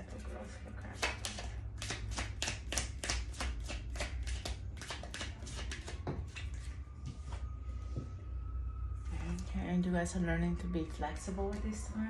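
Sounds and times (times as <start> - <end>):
cards being shuffled: 1.0 - 6.7.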